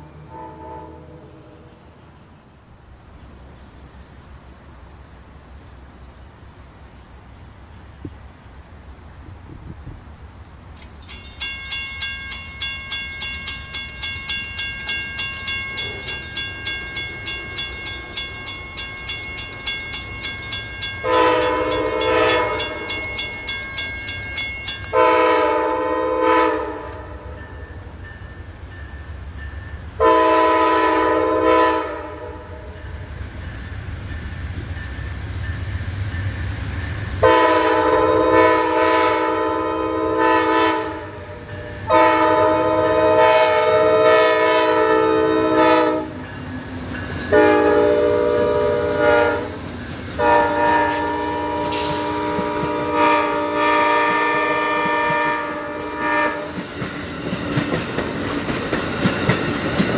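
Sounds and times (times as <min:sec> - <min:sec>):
locomotive air horn blasts: 0:00.0 - 0:01.7, 0:21.0 - 0:23.0, 0:24.9 - 0:27.4, 0:30.0 - 0:32.8, 0:37.2 - 0:46.2, 0:47.3 - 0:49.6, 0:50.2 - 0:56.6
train cars clattering over rails: 0:10.8 - 0:25.1, 0:50.8 - 0:53.0, 0:54.0 - 0:59.9.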